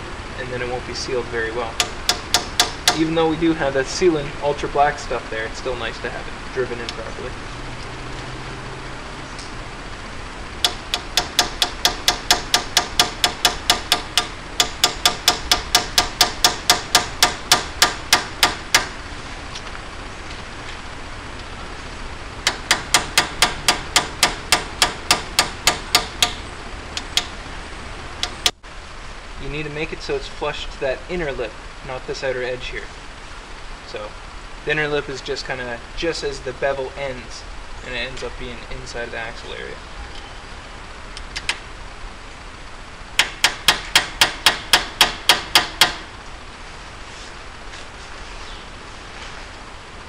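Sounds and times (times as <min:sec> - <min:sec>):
hammer tapping metal: 0:01.8 - 0:03.3, 0:10.6 - 0:19.0, 0:22.4 - 0:27.4, 0:28.2 - 0:28.6, 0:43.2 - 0:46.1.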